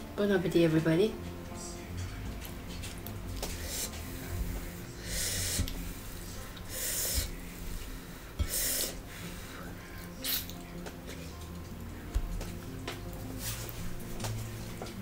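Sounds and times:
person breathing: 3.5s - 10.1s.

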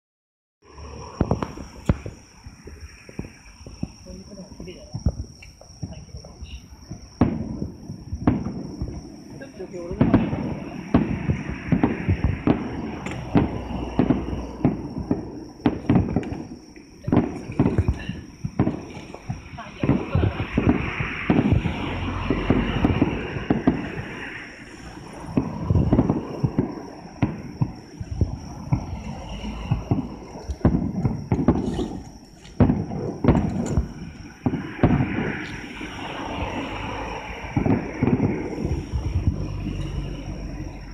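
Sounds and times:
fireworks bursting with rumble: 0.6s - 40.9s.

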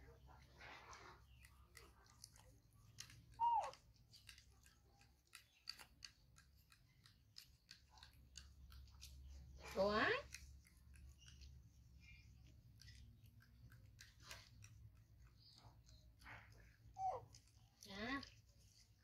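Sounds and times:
faint irregular clicks: 0.0s - 19.0s
baby monkey squeaky call: 3.4s - 3.8s, 17.0s - 17.2s.

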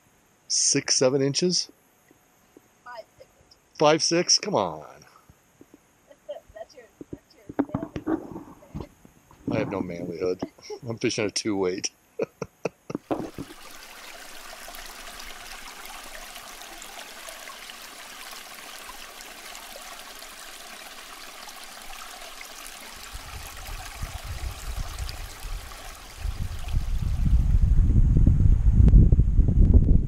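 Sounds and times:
creek running over rocks: 5.6s - 10.9s, 13.0s - 27.7s
wind buffeting microphone: 7.0s - 10.2s, 23.0s - 30.0s.

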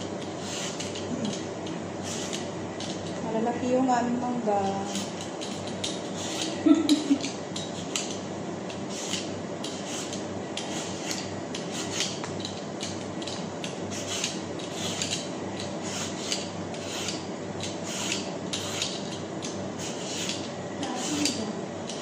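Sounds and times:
blade scraping mango skin: 0.3s - 1.3s, 6.0s - 6.6s, 8.8s - 12.2s, 13.9s - 22.0s.

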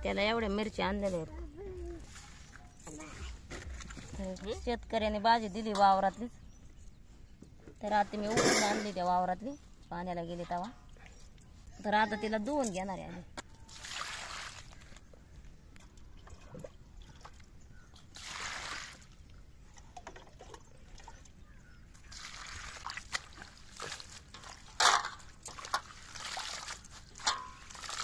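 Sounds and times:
water sloshing and splashing: 1.9s - 5.0s, 13.6s - 15.2s, 15.8s - 28.0s.

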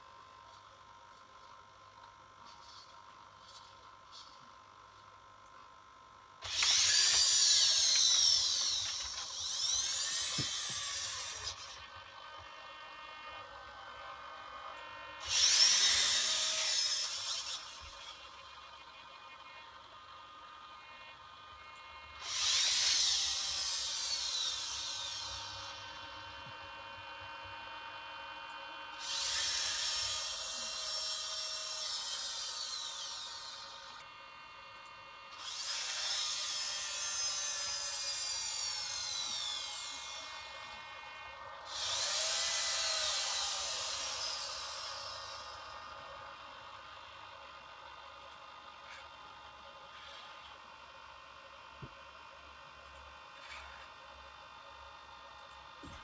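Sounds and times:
robot servo motors whining: 6.4s - 26.5s, 28.9s - 34.1s, 35.3s - 46.0s, 49.9s - 50.5s, 53.4s - 53.9s.

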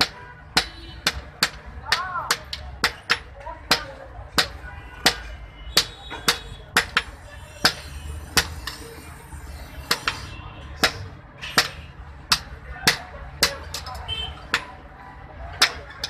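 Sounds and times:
hammer striking steel on anvil: 0.0s - 8.8s.

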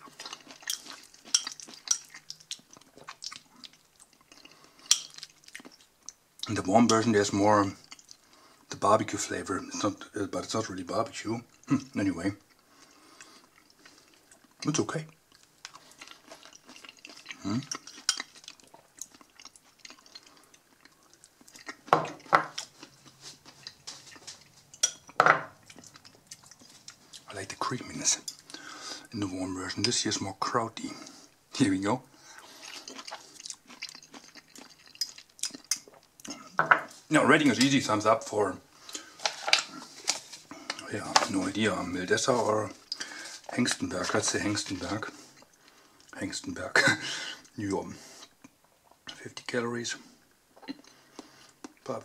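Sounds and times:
fork stirring sauerkraut: 0.1s - 3.4s, 4.3s - 5.8s.

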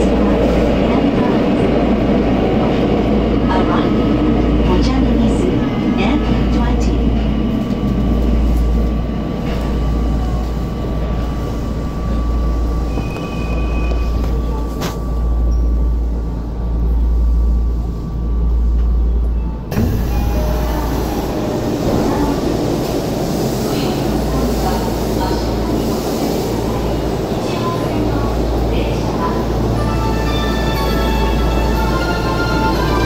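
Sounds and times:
train braking rumble: 0.0s - 33.0s
train doors opening: 5.2s - 15.8s, 18.7s - 33.0s.

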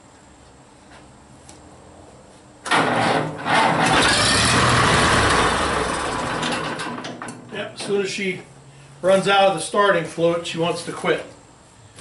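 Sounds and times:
tractor engine starting and running: 2.6s - 8.4s.

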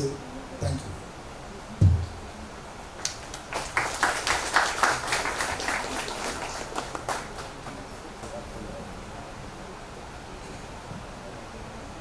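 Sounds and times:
audience applauding: 3.0s - 8.5s.

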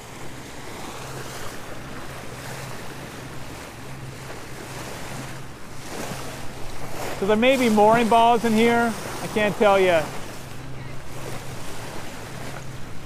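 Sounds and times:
boat engine hum: 0.0s - 13.0s
water rushing along hull: 0.0s - 13.0s.

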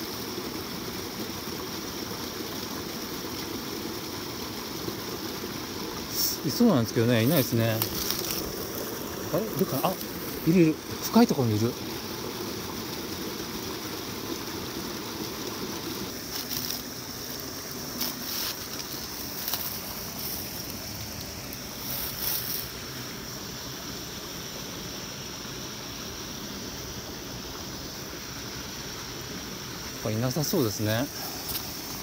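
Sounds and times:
stream rushing over rocks: 0.0s - 32.0s
footsteps on dry leaves and stones: 7.2s - 10.4s, 16.1s - 17.0s, 17.9s - 22.7s, 31.2s - 32.0s.

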